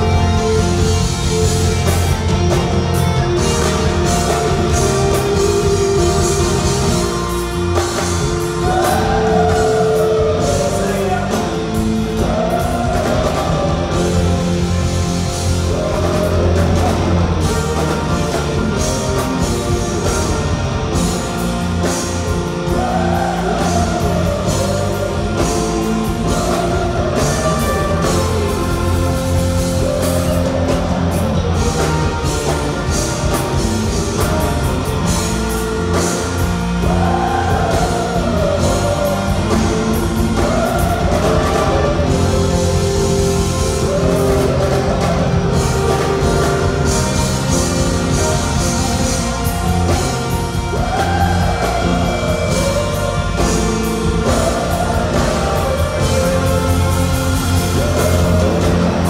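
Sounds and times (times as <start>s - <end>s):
bass and drums: 0.0s - 59.0s.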